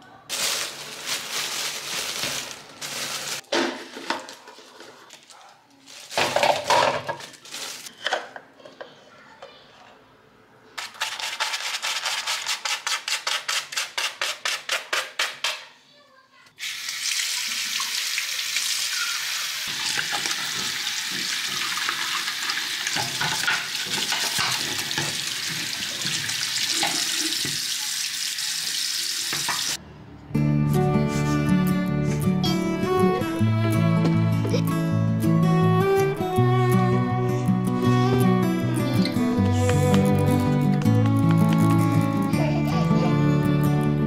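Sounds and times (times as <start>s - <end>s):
plastic bag crinkling: 0.3s - 8.0s
tap water running: 16.6s - 29.8s.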